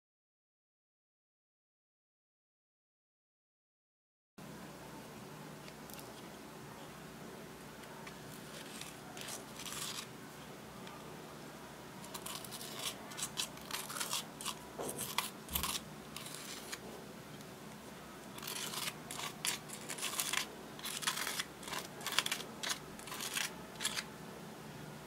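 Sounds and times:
plastic spoon scraping eyeshadow: 0:08.3 - 0:10.1, 0:12.0 - 0:16.8, 0:18.3 - 0:24.1.

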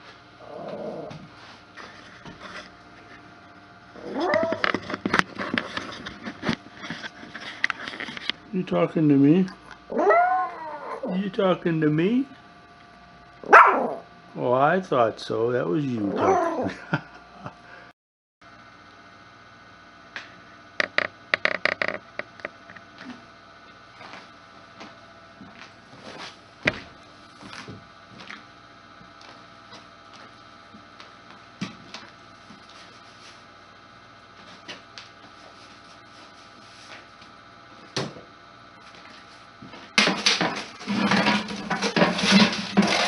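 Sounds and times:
faint steady hum: 0:00.0 - 0:17.9.

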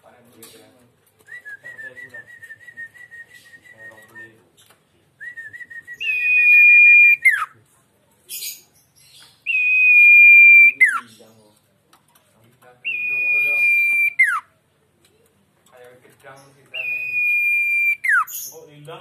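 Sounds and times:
songbird whistling: 0:01.3 - 0:04.4, 0:05.2 - 0:07.6, 0:09.4 - 0:11.2, 0:12.8 - 0:14.5, 0:16.7 - 0:18.6.

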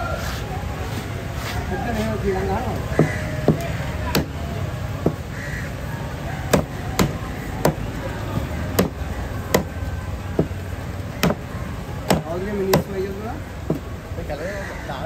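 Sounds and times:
crow cawing: 0:02.8 - 0:04.3, 0:05.1 - 0:05.9, 0:14.3 - 0:15.0
knife chopping on wooden board: 0:03.0 - 0:04.4, 0:05.0 - 0:05.2, 0:06.5 - 0:07.8, 0:08.7 - 0:09.8, 0:10.4 - 0:10.6, 0:11.2 - 0:11.4, 0:12.1 - 0:12.9.

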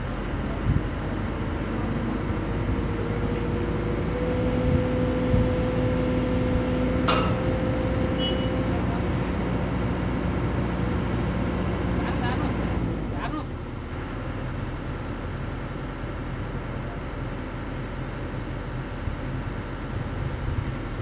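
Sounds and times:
heavy construction machinery humming: 0:00.0 - 0:21.0
faint held whine: 0:06.8 - 0:08.9.

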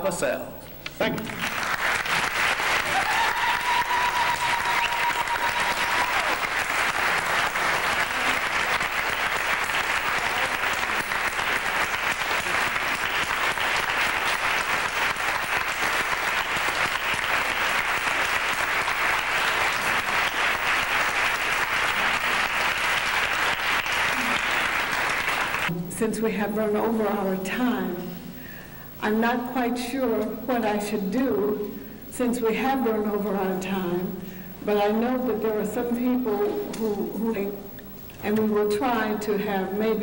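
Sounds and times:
audience applauding: 0:01.2 - 0:25.7.

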